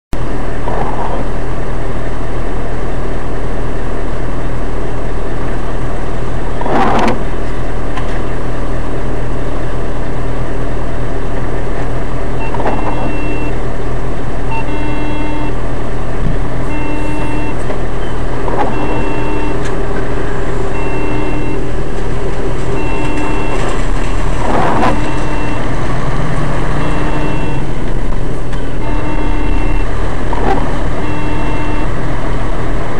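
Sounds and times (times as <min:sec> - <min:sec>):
vehicle engine and road noise: 0:00.1 - 0:32.9
beeping chime: 0:26.8 - 0:27.6.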